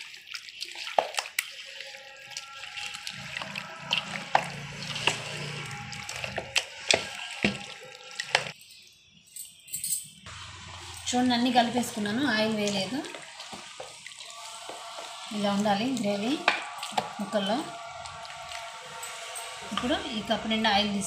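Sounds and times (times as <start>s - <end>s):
hand squelching food in marinade: 0.0s - 8.6s, 10.3s - 20.8s.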